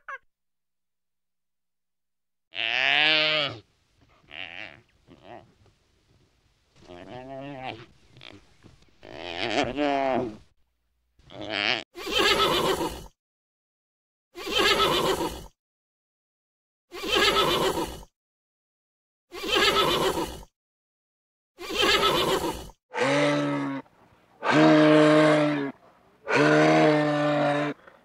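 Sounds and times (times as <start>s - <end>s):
horse whinnying: 11.4s - 13.1s, 14.4s - 15.5s, 17.0s - 18.0s, 19.4s - 20.4s, 21.6s - 23.8s.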